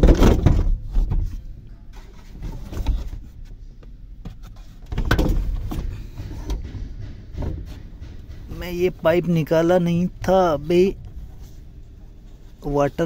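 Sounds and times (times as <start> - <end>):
plastic clunks: 0.0 - 1.4
plastic knocking and rattling: 0.0 - 1.4, 4.2 - 11.6.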